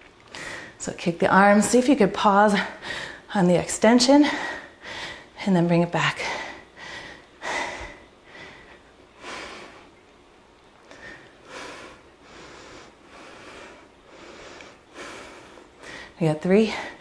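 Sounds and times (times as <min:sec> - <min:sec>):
woman breathing hard: 0:02.7 - 0:03.3, 0:04.2 - 0:05.4, 0:06.2 - 0:09.9, 0:10.9 - 0:17.0.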